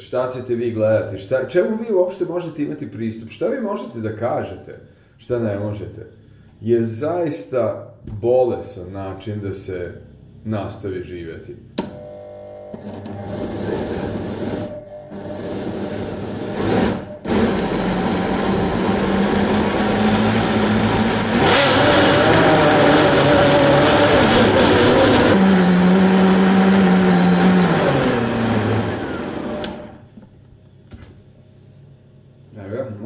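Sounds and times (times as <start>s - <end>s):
blender switch click: 11.8s - 12.0s, 29.6s - 29.9s
blender motor running: 12.0s - 30.0s.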